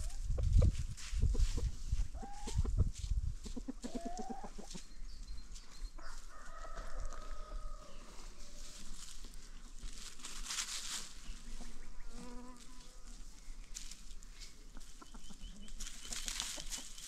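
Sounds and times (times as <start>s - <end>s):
chickens clucking: 0.0s - 17.0s
rooster crowing: 6.0s - 8.5s.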